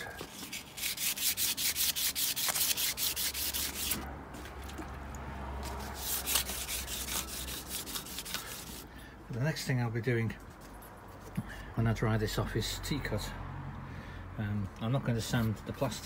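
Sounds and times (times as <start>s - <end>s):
sandpaper rubbing on paint: 0.0s - 4.0s, 5.8s - 8.9s.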